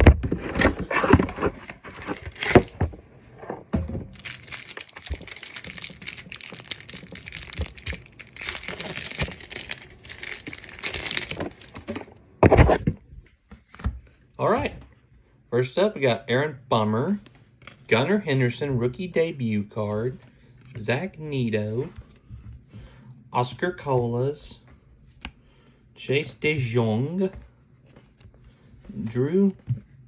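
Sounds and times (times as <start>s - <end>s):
cardboard box tearing and crinkling: 0.3s - 2.8s, 4.1s - 12.0s.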